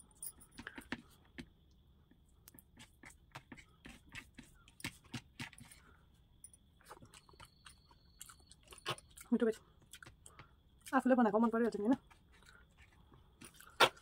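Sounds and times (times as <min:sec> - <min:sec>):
person chewing food: 0:06.8 - 0:10.9, 0:12.0 - 0:14.0.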